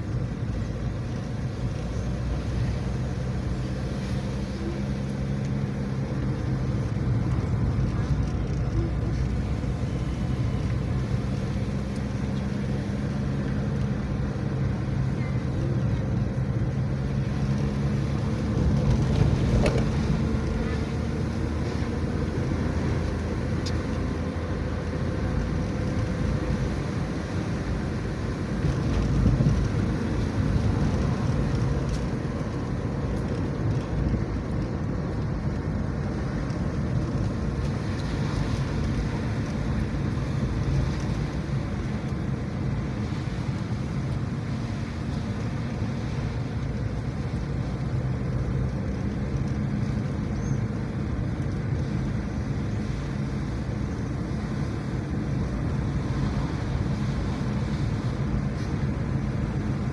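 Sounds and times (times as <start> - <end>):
car engine: 0.0 - 59.9
road noise: 0.0 - 59.9.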